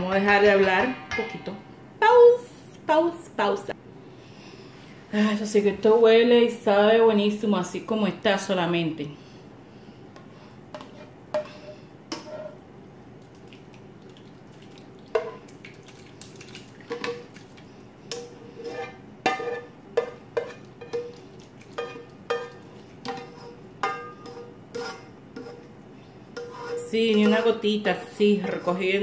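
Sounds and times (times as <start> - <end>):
spatula knocking on skillet: 19.2 - 25.6.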